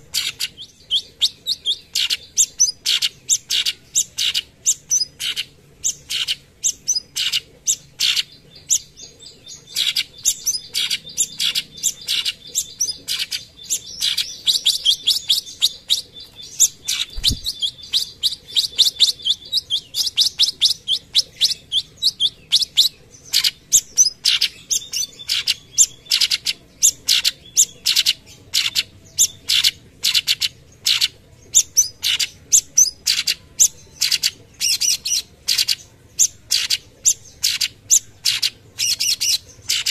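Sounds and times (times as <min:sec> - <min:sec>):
bird singing rapid chirps: 0:00.0 - 0:39.9.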